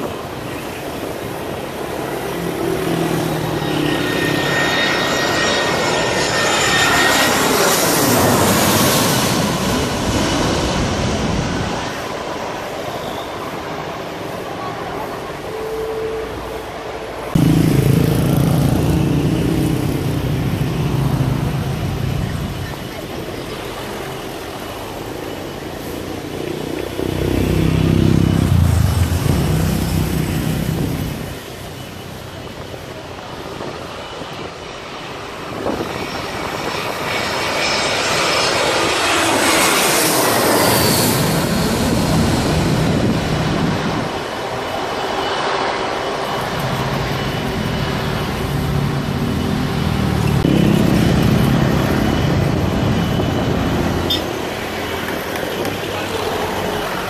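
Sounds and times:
jet airliner passing overhead: 0.0 - 57.0
motorcycle engines passing: 17.3 - 24.4, 25.4 - 32.2, 46.5 - 57.0.

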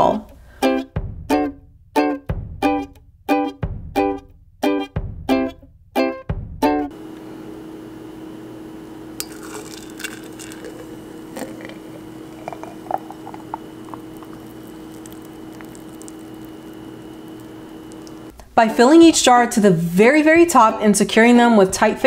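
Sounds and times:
low hum: 6.9 - 18.4
juice pouring into glass jar: 9.2 - 18.3.

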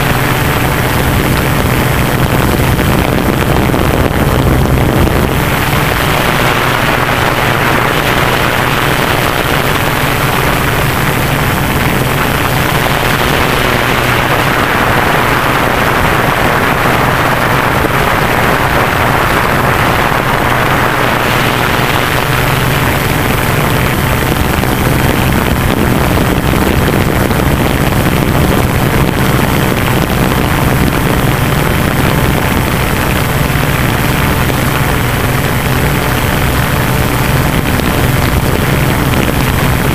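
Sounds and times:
drone motors humming: 0.0 - 16.1
rushing propeller air: 0.0 - 39.9.

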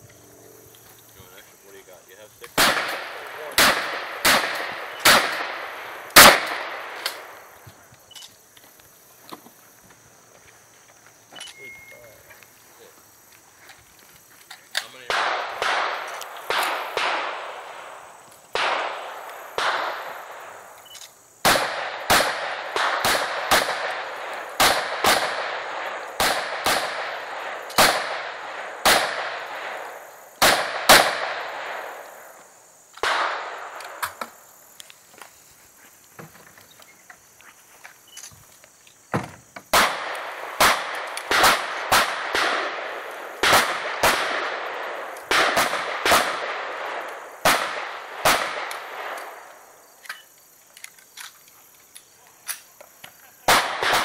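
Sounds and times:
gunshots with ringing echo: 2.6 - 7.4, 15.0 - 20.7, 21.4 - 32.0, 33.0 - 33.8, 39.7 - 49.4, 53.5 - 54.0.

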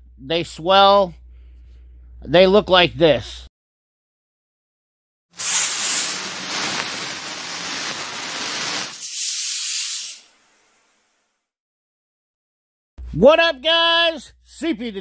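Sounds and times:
rushing hiss: 5.4 - 11.0.

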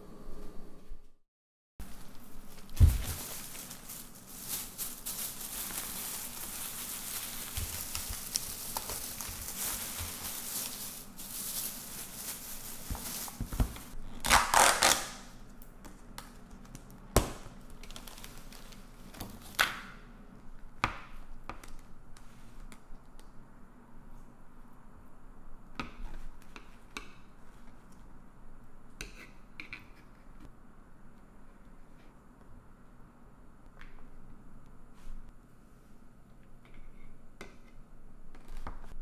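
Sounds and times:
plastic bag rustling: 1.8 - 15.0.

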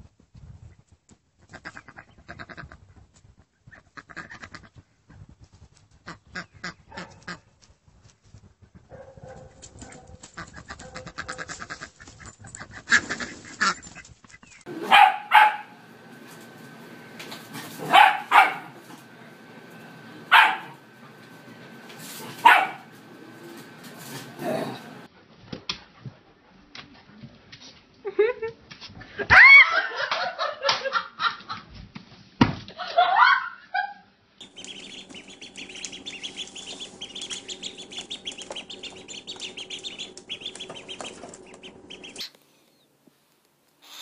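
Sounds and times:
dogs scuffling in grass: 9.2 - 25.1, 34.4 - 42.8.

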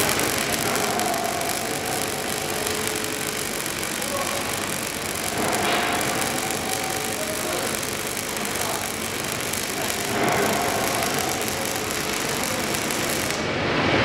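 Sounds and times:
welding arc crackling hiss: 0.0 - 13.6.

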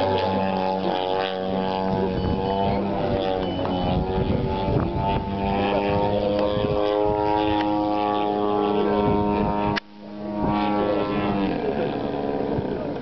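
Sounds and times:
small plane engine drone: 0.0 - 13.0.

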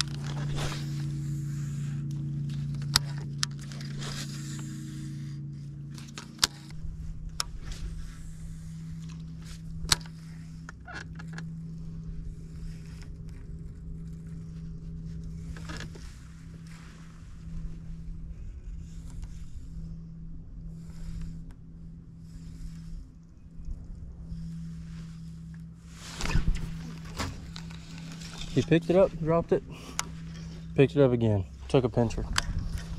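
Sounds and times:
electric trolling motor humming: 0.0 - 32.9.

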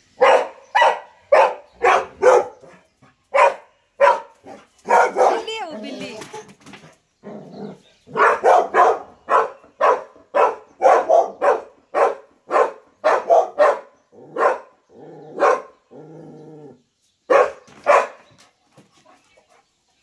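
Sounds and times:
dog barking: 0.2 - 5.6, 8.1 - 15.8, 17.3 - 18.3.

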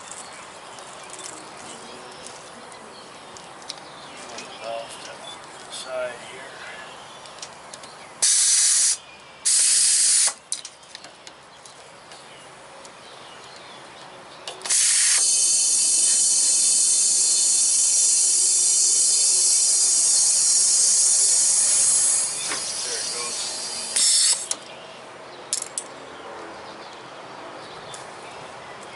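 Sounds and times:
compressed air hissing: 8.2 - 10.4, 14.7 - 24.6.

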